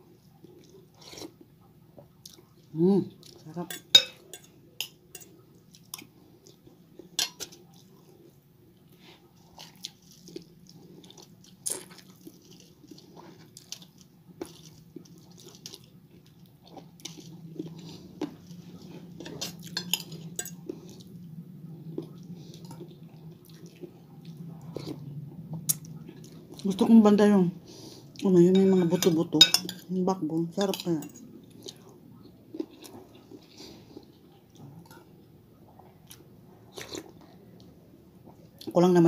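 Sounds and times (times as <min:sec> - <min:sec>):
low steady hum: 0:00.0 - 0:39.0
chewing: 0:00.2 - 0:26.8, 0:30.7 - 0:38.7
cutlery clinking on a plate: 0:03.7 - 0:05.3.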